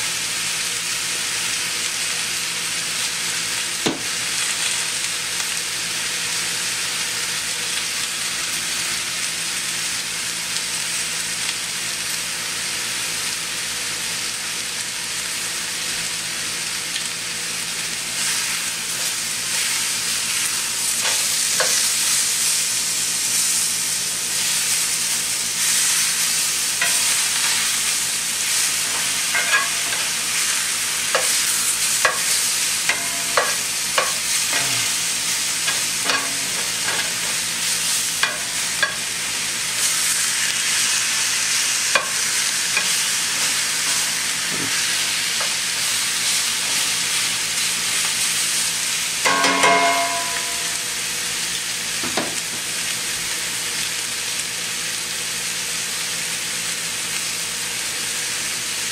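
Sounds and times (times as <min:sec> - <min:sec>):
steaks sizzling in a pan: 0:00.0 - 0:58.9
metal tongs clicking on pan: 0:29.0 - 0:30.1, 0:32.0 - 0:34.7.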